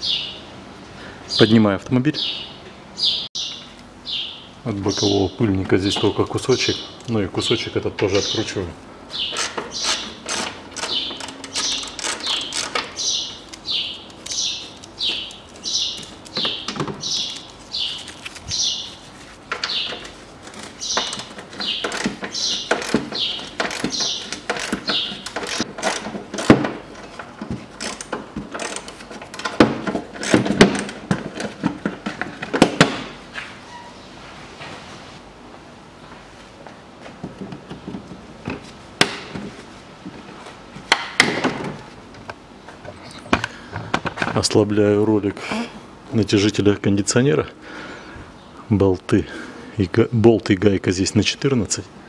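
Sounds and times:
screwdriver turning out a screw: 0:09.4 - 0:13.6
short high squeak: 0:33.6 - 0:34.0.

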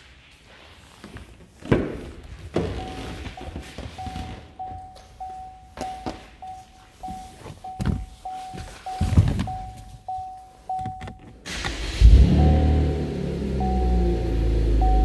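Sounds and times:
car warning chime dinging: 0:02.8 - 0:11.5, 0:12.1 - 0:15.0
knocks and thump in car seat: 0:09.0 - 0:09.7.

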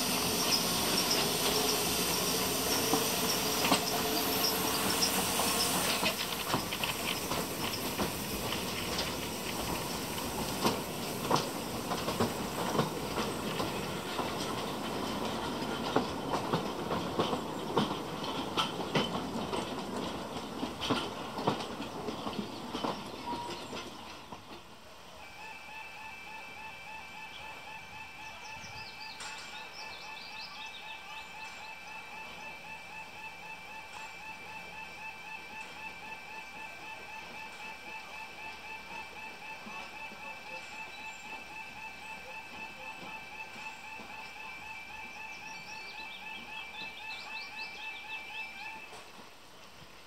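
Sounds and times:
wheels clicking over rail joints: 0:00.0 - 0:25.1
steam locomotive hissing: 0:00.0 - 0:50.0.

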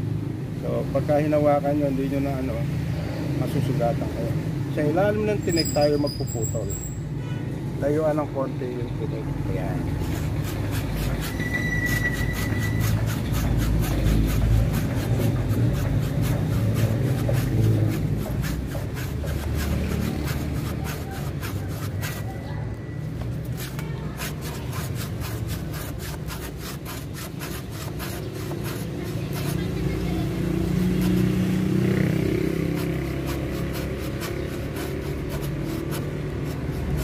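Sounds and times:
hand saw rasping through wood: 0:09.6 - 0:37.0.

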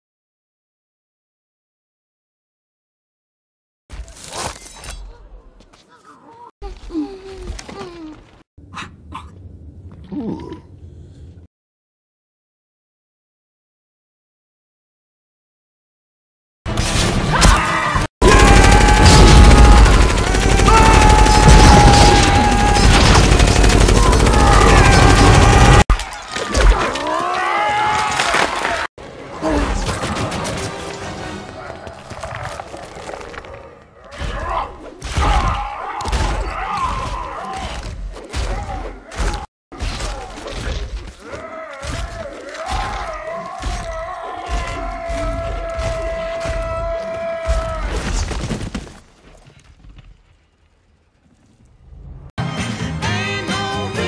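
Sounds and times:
creature roaring: 0:10.0 - 0:10.8, 0:23.9 - 0:25.8
creature grunting and groaning: 0:10.0 - 0:11.0, 0:32.5 - 0:48.0
gunfire and blasts: 0:18.2 - 0:25.8
debris crashing and shattering: 0:18.2 - 0:28.9.

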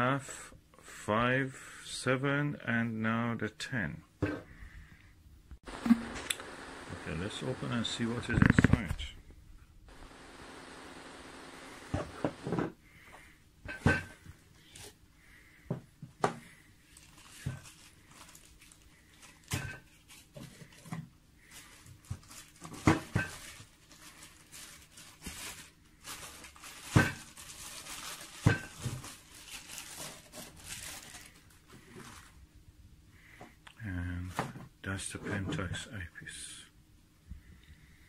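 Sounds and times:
plastic bag crinkling: 0:16.9 - 0:32.4.

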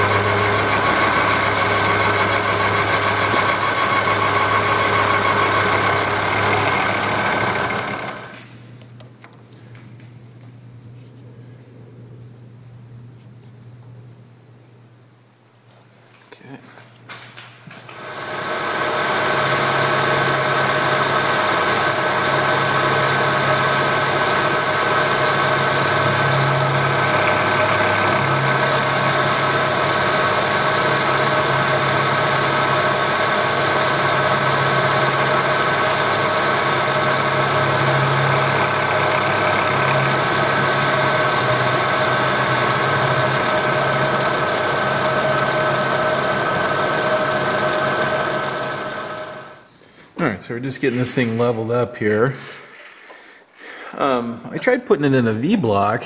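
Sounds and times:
milling machine whine: 0:00.0 - 0:08.5, 0:17.9 - 0:49.7.

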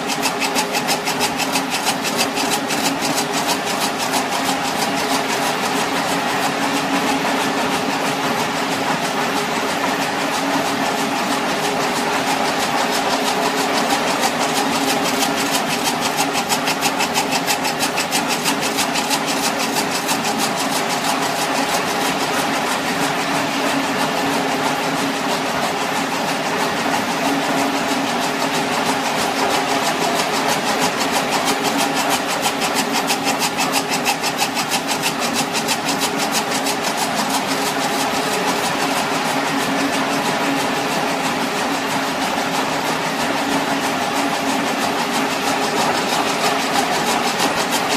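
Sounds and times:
fast even clicking: 0:00.0 - 0:05.5, 0:13.1 - 0:21.9, 0:28.8 - 0:39.2
loud machine hum with tones: 0:00.0 - 0:47.9.

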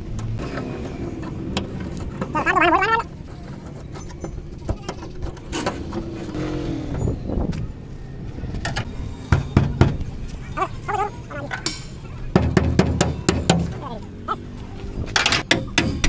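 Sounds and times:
traffic hum: 0:00.0 - 0:16.0
vehicle passing: 0:05.4 - 0:12.4, 0:13.1 - 0:15.2.

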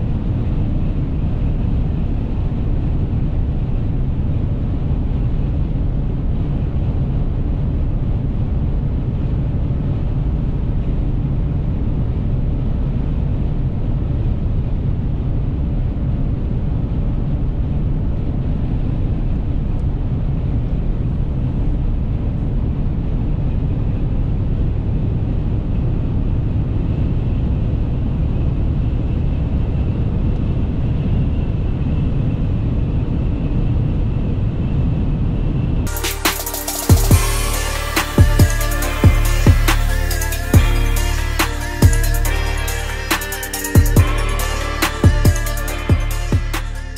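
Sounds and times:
engine drone: 0:35.9 - 0:46.9.

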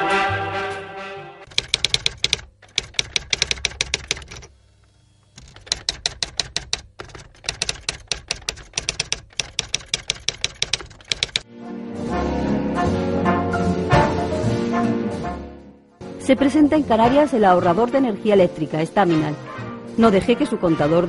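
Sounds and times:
typewriter keystrokes clacking: 0:01.5 - 0:04.5, 0:05.4 - 0:11.4.

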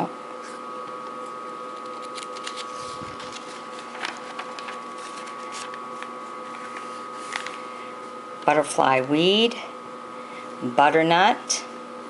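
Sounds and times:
steady hum: 0:00.0 - 0:12.0
paper pages turning: 0:01.8 - 0:07.6.

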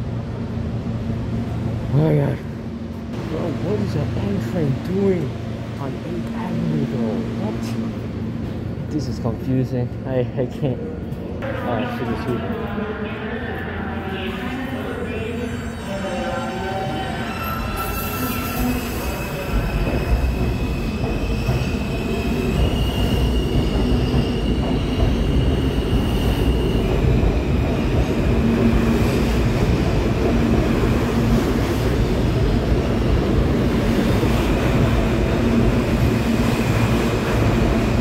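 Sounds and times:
train wheels rumbling on rails: 0:18.6 - 0:38.0.

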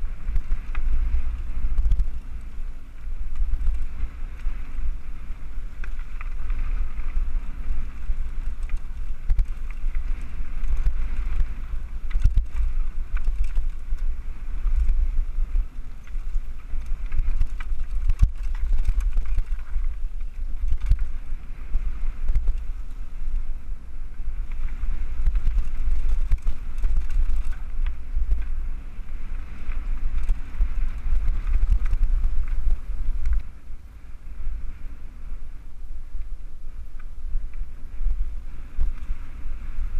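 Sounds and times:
bike knocking and rattling: 0:00.0 - 0:33.8
tyres rumbling on dirt trail: 0:00.0 - 0:39.9
wind buffeting: 0:00.0 - 0:39.9.

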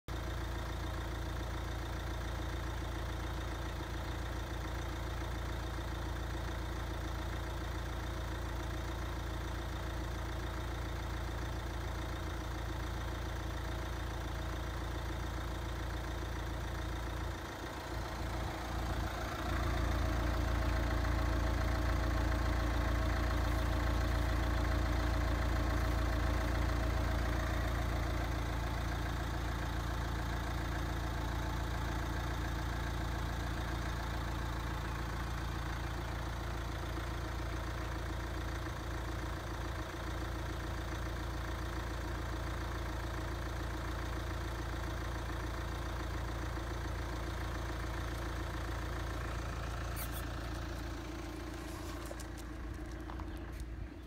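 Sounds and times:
car engine idling: 0:00.1 - 0:54.0.

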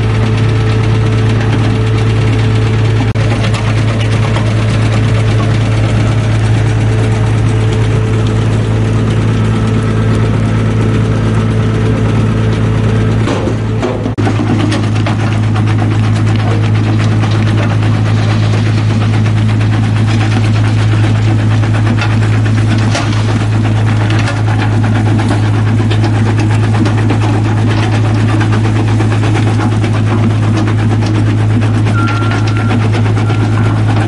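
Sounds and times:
rock crusher droning: 0:00.0 - 0:34.0
rocks cracking and knocking: 0:00.2 - 0:11.1, 0:12.5 - 0:34.0.

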